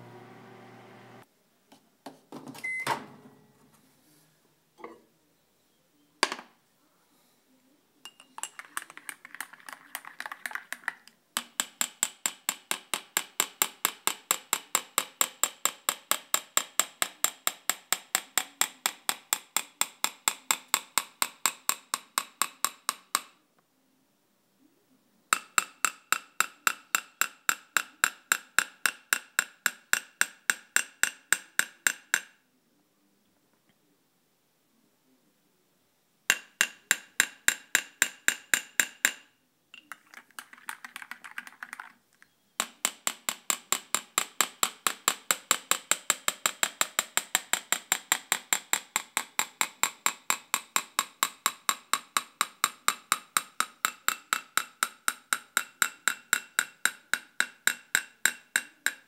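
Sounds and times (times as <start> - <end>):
spoon tapping on glass: 8.1 - 10.8.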